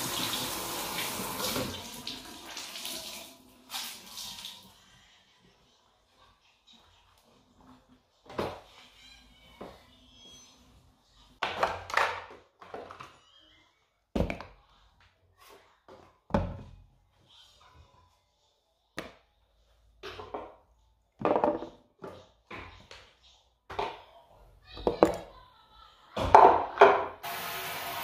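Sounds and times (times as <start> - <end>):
bottles set down on counter: 21.2 - 21.8.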